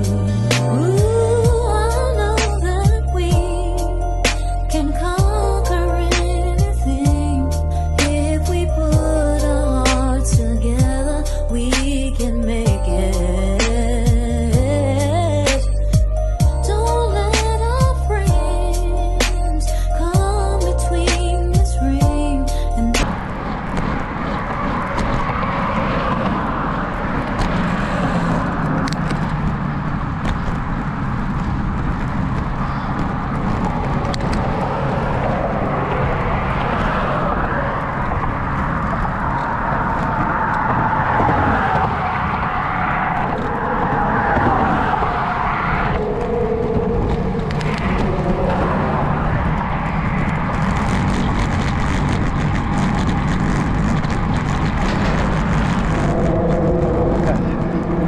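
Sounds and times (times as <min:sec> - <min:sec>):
cars passing by: 0:00.0 - 0:58.0
wind noise on microphone: 0:17.3 - 0:58.0.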